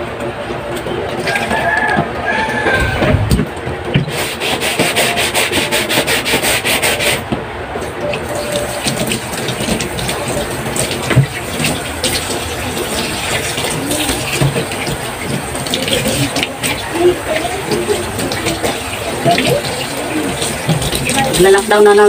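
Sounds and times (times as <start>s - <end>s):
scrubbing chopping board: 1.8s - 7.3s
tap water running into sink: 8.1s - 22.0s.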